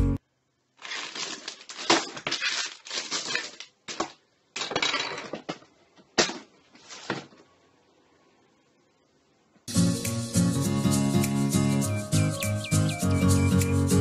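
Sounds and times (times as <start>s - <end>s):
plastic bags crinkling: 0.7s - 5.6s.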